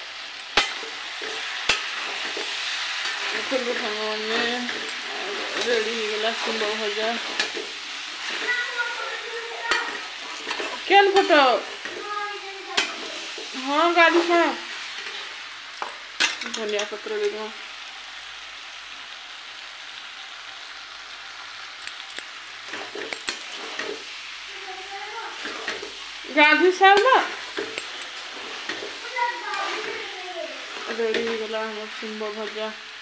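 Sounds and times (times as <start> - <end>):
vegetables sizzling in a pan: 0.0 - 33.0
spatula scraping a pan: 0.6 - 15.5, 21.9 - 32.9.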